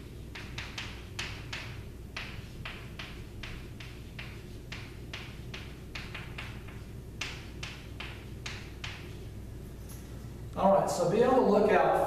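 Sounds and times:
chalk scratching on blackboard: 0.0s - 9.4s.

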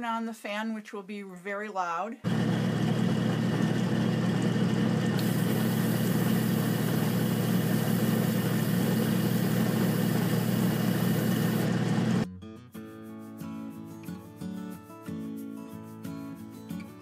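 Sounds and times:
electric fan whirring: 2.3s - 12.3s.

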